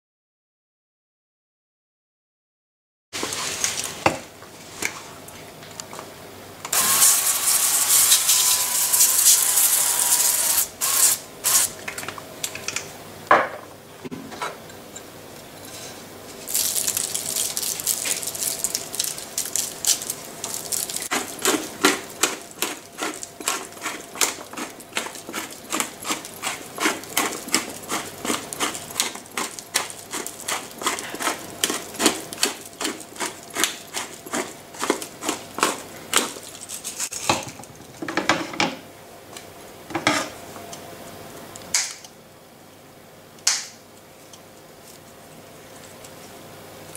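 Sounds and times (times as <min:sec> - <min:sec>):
pepper mill grinding: 0:06.7 - 0:11.7, 0:16.4 - 0:37.3.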